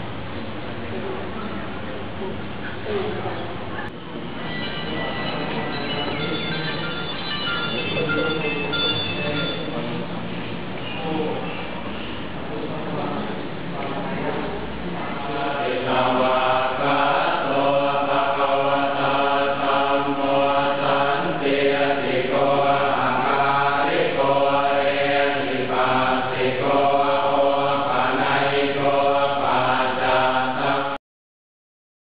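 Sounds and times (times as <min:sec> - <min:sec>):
monks chanting in unison: 0:13.9 - 0:31.0.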